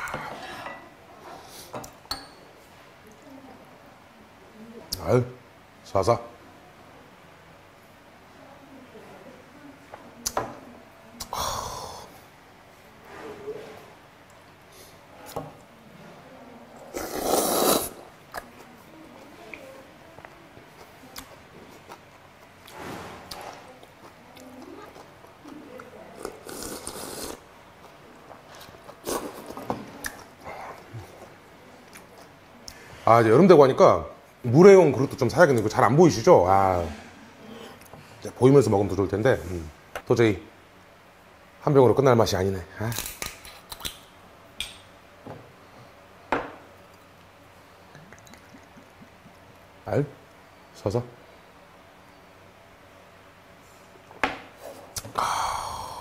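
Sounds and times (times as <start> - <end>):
slurping soup: 16.9 - 18.0, 26.4 - 27.4
chewing: 20.2 - 32.8, 47.9 - 49.7.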